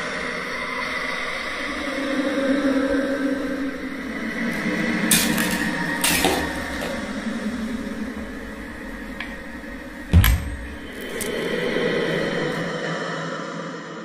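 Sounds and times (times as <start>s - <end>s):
drawer shutting thump: 10.1s - 10.8s.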